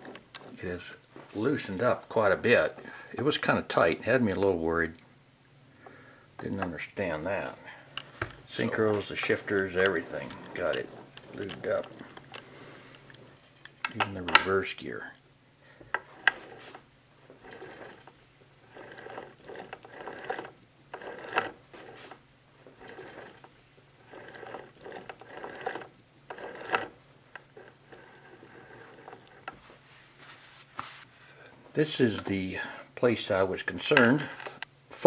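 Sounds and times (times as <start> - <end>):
gearbox gears whirring and clicking: 8.6 - 12.4, 17.3 - 29.5.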